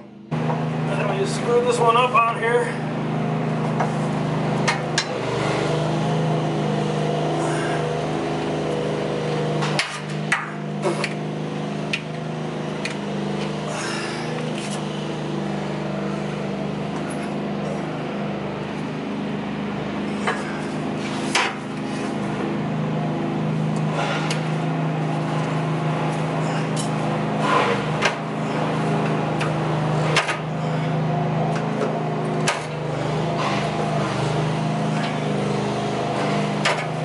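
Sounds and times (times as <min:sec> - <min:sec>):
steady low hum: 0:00.0 - 0:37.0
sharp clicks and metal knocks: 0:04.6 - 0:05.2, 0:09.6 - 0:11.2, 0:11.9 - 0:12.2, 0:29.0 - 0:30.5, 0:31.5 - 0:32.8, 0:36.6 - 0:37.0.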